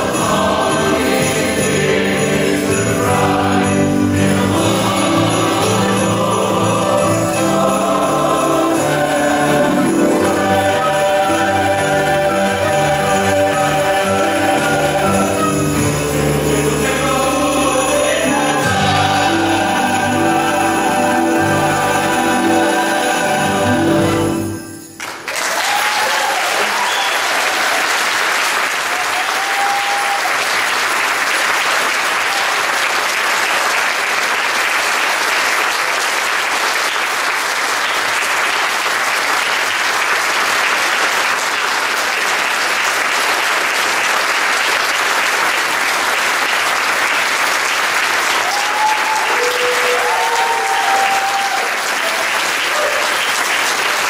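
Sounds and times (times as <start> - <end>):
choir final chord: 0.0 - 24.8
audience applauding: 0.0 - 54.0.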